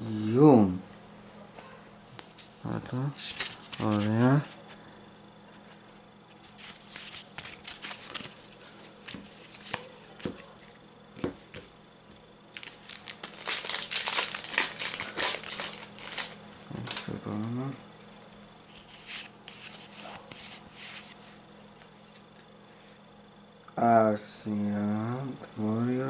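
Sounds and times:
foil wrapper crinkling torn open: 0:12.5 - 0:17.5
cards sliding on cloth mat: 0:18.8 - 0:21.3.

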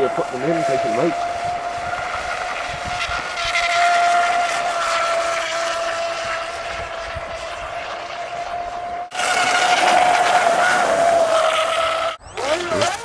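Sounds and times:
high-pitched motor whine: 0:00.0 - 0:13.0.

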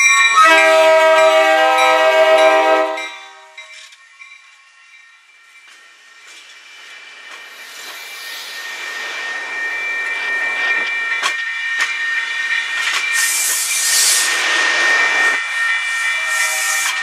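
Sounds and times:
high-pitched metallic squeal: 0:00.0 - 0:17.0
train coaches rumbling past: 0:00.0 - 0:17.0
strong hiss: 0:06.5 - 0:09.8, 0:13.1 - 0:15.2.

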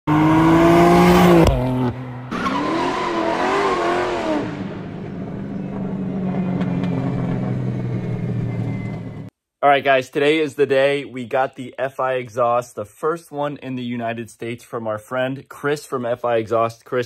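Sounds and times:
car engine revving: 0:00.1 - 0:09.3.

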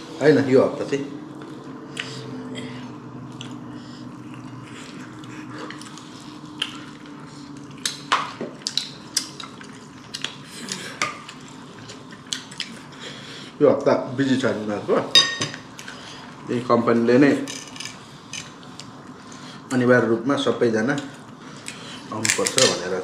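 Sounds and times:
low steady hum: 0:00.0 - 0:23.0
dishes and cutlery clinking: 0:15.1 - 0:15.6.

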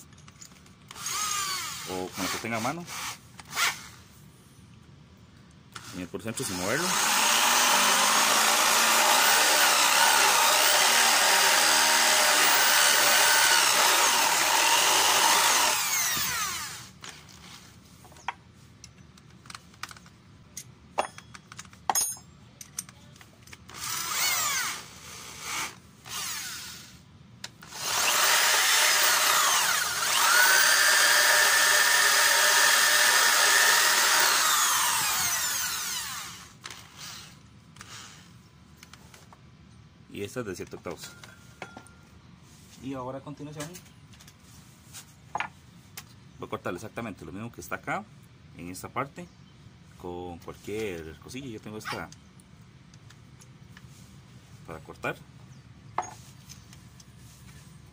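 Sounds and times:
electric drill boring into wood: 0:00.9 - 0:04.0, 0:05.8 - 0:17.1, 0:23.7 - 0:27.0, 0:27.6 - 0:38.2.

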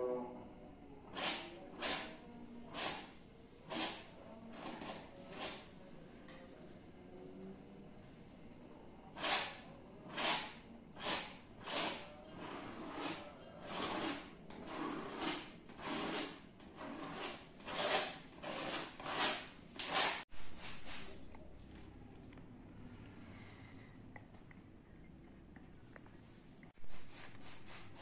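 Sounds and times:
paintbrush scraping on canvas: 0:01.2 - 0:05.8, 0:09.2 - 0:21.3, 0:26.2 - 0:28.0.

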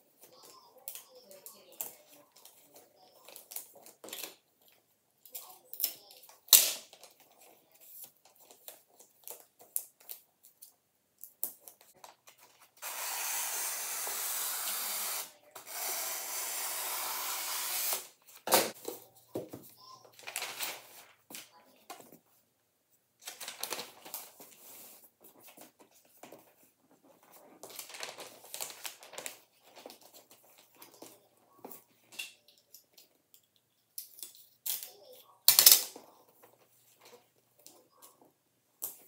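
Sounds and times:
wrapping paper crinkling: 0:20.1 - 0:21.6, 0:23.2 - 0:31.1.

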